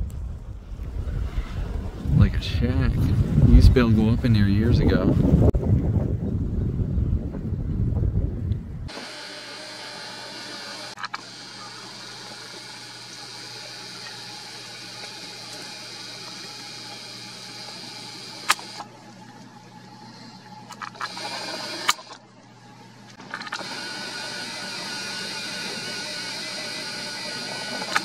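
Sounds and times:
camera zoom motor whirring: 8.9 - 22.2, 23.1 - 28.0
sharp clicks: 18.4 - 18.9, 27.6 - 28.0.

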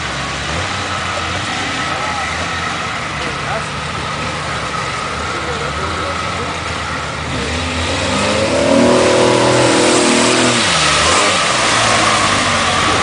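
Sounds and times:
mud and water splashing: 6.1 - 13.0
engine revving hard: 7.2 - 13.0.

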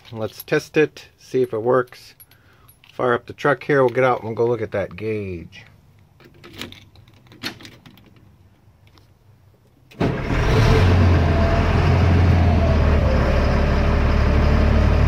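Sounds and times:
diesel engine starting and idling: 9.9 - 15.0.

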